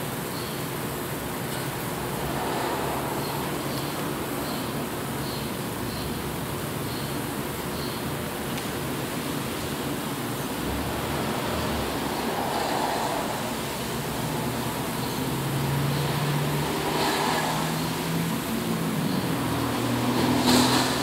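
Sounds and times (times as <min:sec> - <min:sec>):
steady hiss: 0:00.0 - 0:21.0.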